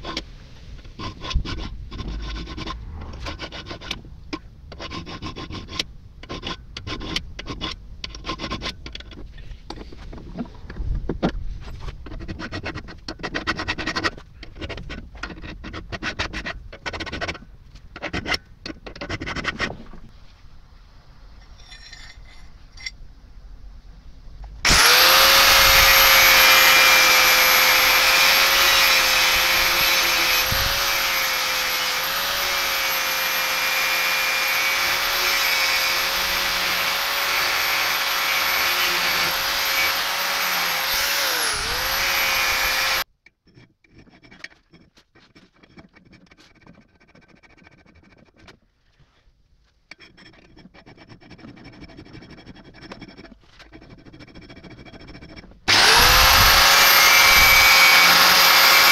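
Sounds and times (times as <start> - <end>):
hand tool scraping metal: 0.0 - 10.6, 11.6 - 20.0, 21.4 - 23.0, 24.7 - 49.2, 49.8 - 58.9
angle grinder whining: 24.6 - 43.0, 55.7 - 58.9.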